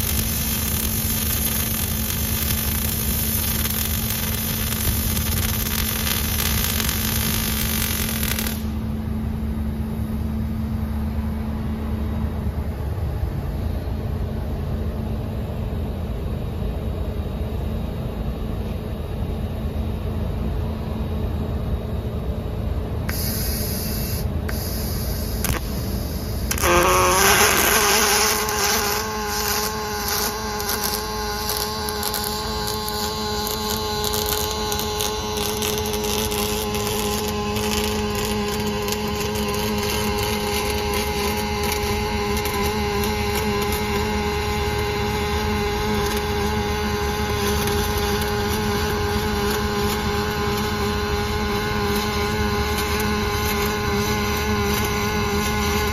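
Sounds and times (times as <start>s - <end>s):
hiss: 0.0s - 8.7s, 23.1s - 55.9s
crackling welding arc: 0.0s - 8.9s, 23.1s - 55.9s
welding machine hum: 0.0s - 11.7s, 23.1s - 55.9s.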